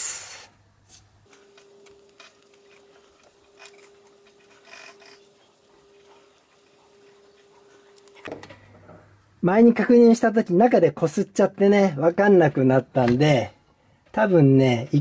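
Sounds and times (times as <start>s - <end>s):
marker scratching on metal: 1.3s - 8.3s.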